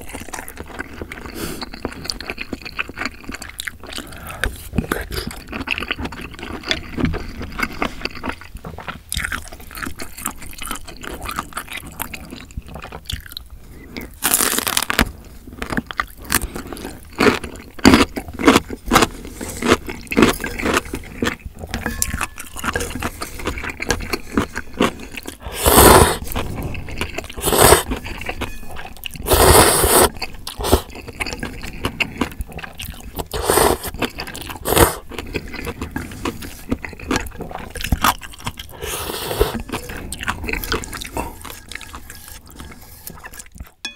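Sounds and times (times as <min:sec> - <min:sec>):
wet chewing: 0:00.0 - 0:43.9
slurping noodles: 0:22.5 - 0:28.4, 0:29.0 - 0:43.7.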